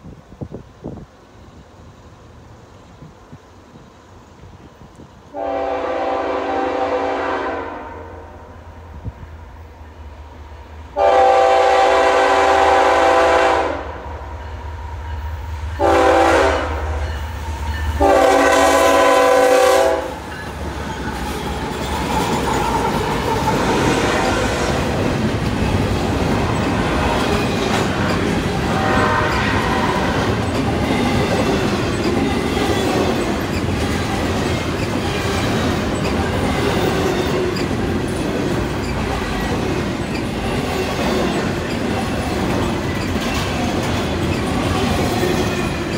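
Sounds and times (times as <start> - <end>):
locomotive air horn: 5.3 - 8.4, 11.0 - 14.1, 15.8 - 17.0, 18.0 - 20.2, 28.7 - 30.2
train wheels clickety-clack: 14.5 - 45.9.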